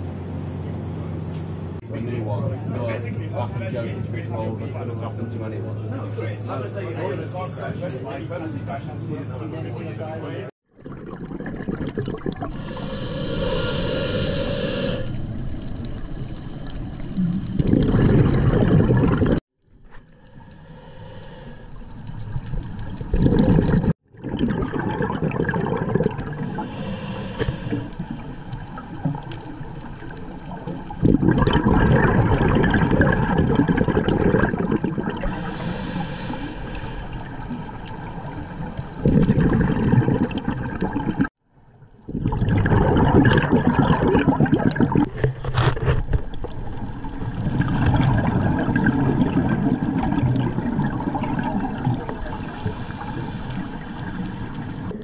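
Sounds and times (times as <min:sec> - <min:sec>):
bubbling exhalations: 0:10.7 - 0:19.4, 0:21.7 - 0:41.3, 0:42.0 - 0:55.0
regulator hissing inhalations: 0:12.5 - 0:15.2, 0:20.1 - 0:22.0, 0:26.4 - 0:28.6, 0:35.2 - 0:37.5, 0:51.4 - 0:54.9.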